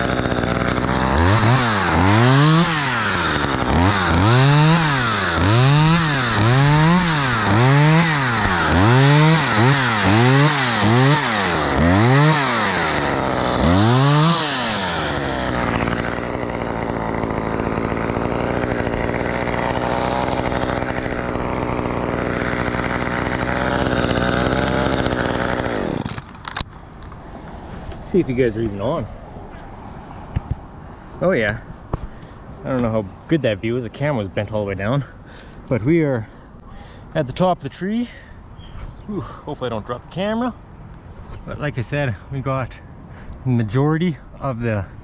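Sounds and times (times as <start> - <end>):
chainsaw revving and idling: 0.0 - 26.7.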